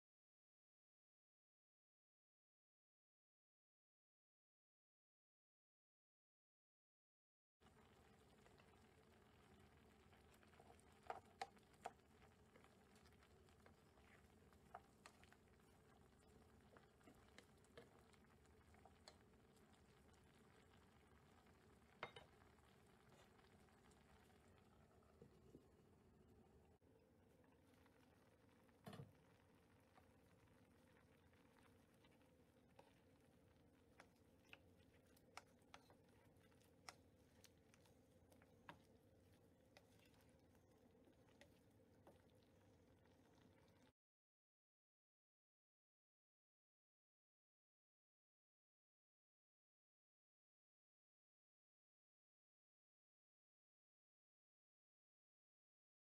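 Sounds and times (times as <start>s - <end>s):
curry simmering with soft pops: 7.6s - 44.0s
spatula moving through sauce: 8.0s - 24.6s, 29.9s - 43.9s.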